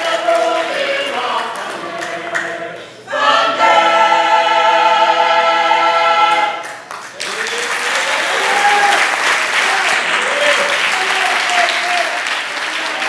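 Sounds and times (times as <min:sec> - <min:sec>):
choir singing: 0:00.0 - 0:06.7
applause: 0:06.6 - 0:13.0.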